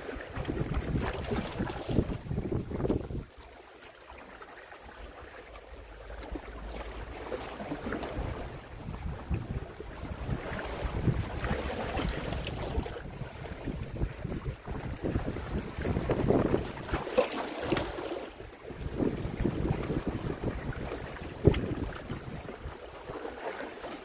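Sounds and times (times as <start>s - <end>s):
small waves washing ashore: 0.0s - 24.0s
wind buffeting microphone: 0.3s - 3.3s, 7.7s - 17.1s, 18.7s - 22.8s.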